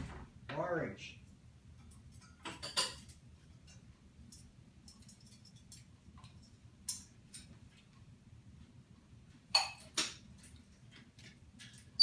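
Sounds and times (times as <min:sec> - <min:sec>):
parrot claws tapping metal bars: 0:01.8 - 0:07.8.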